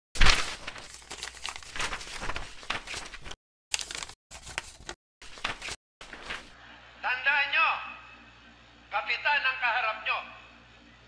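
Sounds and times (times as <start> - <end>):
scratchy crinkling sound effect: 0.2 - 6.6.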